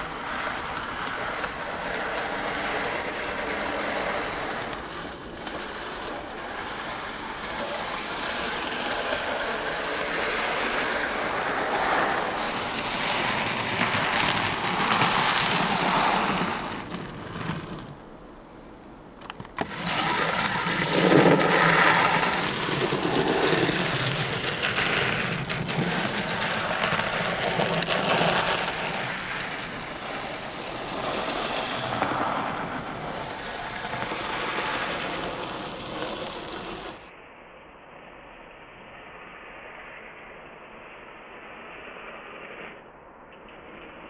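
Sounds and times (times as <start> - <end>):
wheels clicking on rails: 0.0 - 37.2
small electric motor whirring: 19.4 - 37.0.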